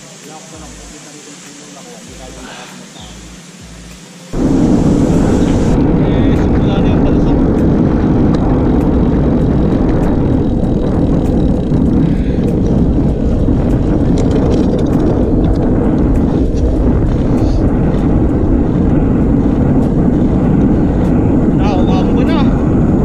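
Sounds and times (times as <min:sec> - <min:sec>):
wind buffeting microphone: 0:02.0 - 0:23.0
tyre noise on asphalt: 0:07.2 - 0:21.7.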